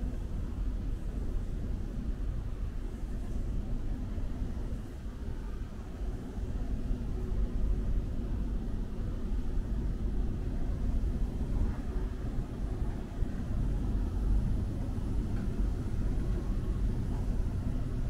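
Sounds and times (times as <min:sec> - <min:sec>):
city street rumble: 0:05.0 - 0:18.0.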